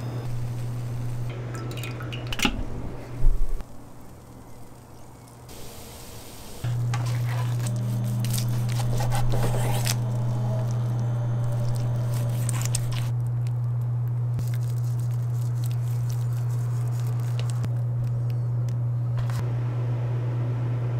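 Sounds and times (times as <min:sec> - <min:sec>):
loud steady low hum: 0:05.6 - 0:20.9
knife cutting through ribs: 0:06.9 - 0:10.8, 0:11.5 - 0:13.1.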